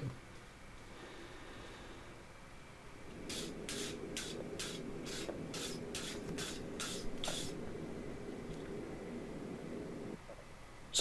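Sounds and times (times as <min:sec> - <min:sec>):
wire brush scraping hot steel: 0:03.2 - 0:07.6.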